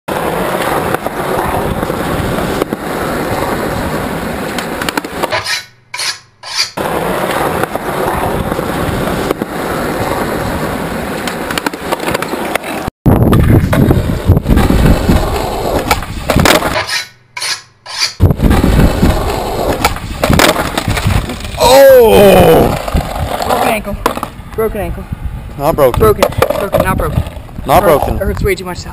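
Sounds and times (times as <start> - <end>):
skateboard clattering and knocking: 0.1 - 5.5, 11.2 - 13.9, 14.5 - 17.0, 18.5 - 21.6, 22.7 - 24.4, 25.9 - 27.6
skateboard wheels rolling on concrete: 0.1 - 28.9.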